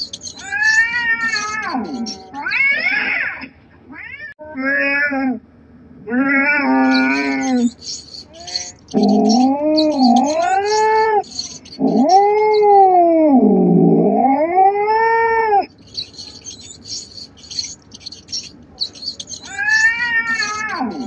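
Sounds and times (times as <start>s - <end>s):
high-pitched scratchy bursts: 0.0s - 2.3s, 6.9s - 12.8s, 15.7s - 21.0s
cat yowling: 0.0s - 3.4s, 6.1s - 21.0s.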